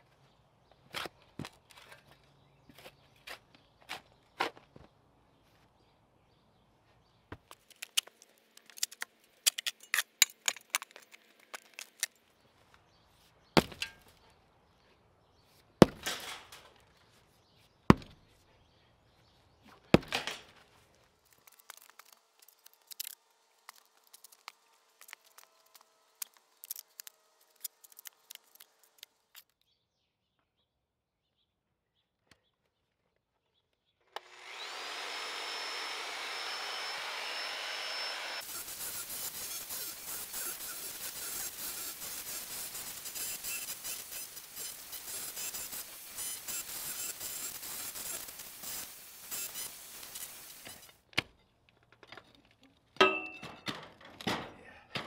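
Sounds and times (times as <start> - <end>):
wooden clicks and crackles: 7.4 - 12.2, 21.2 - 29.6.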